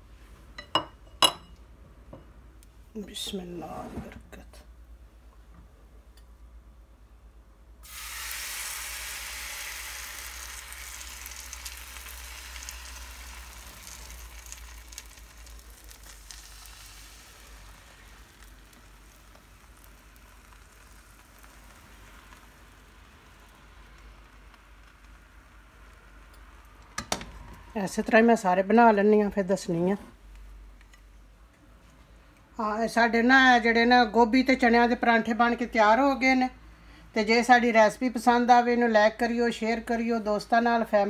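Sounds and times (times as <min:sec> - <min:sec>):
batter sizzling in a frying pan: 0:07.8 - 0:27.0.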